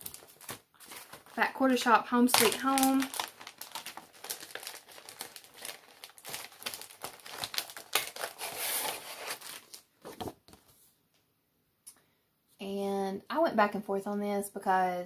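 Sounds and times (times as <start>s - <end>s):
packaging crinkling: 0.0s - 1.6s, 2.2s - 10.3s.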